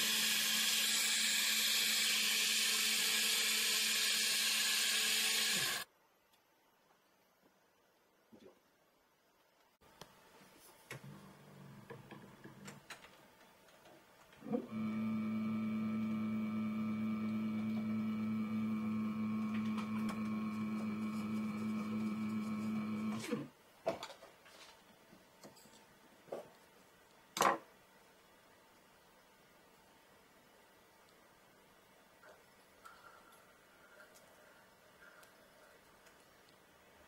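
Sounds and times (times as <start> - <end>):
cnc router whining: 0.0 - 5.8, 14.4 - 23.4.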